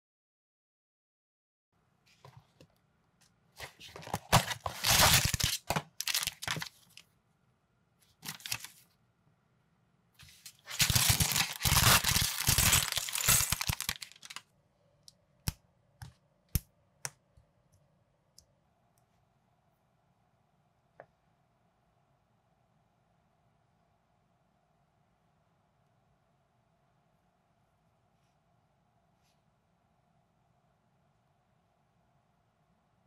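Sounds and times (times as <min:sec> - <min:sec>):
plastic bag crinkling and tearing: 0:03.7 - 0:07.0, 0:08.2 - 0:08.8, 0:10.5 - 0:14.4
cardboard box flap tearing: 0:10.7 - 0:14.4
plastic pieces clicking together: 0:10.8 - 0:14.4.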